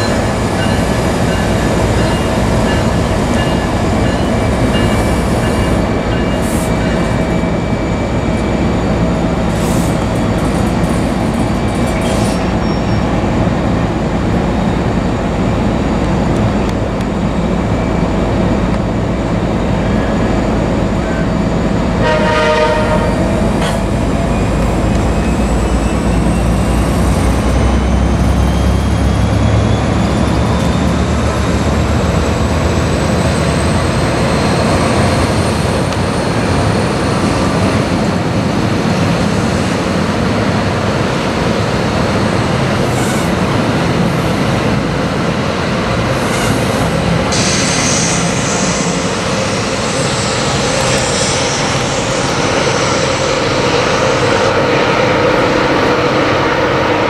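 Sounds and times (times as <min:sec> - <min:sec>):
train passing at speed: 0:00.0 - 0:57.0
train horn blast: 0:22.0 - 0:23.5.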